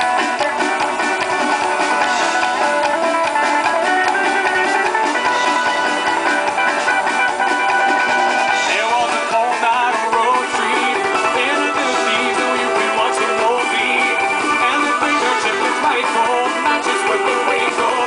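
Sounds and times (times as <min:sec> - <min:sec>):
acoustic guitars strumming: 0:00.0 - 0:18.0
drum kit: 0:00.0 - 0:18.0
upright bass: 0:00.0 - 0:18.0.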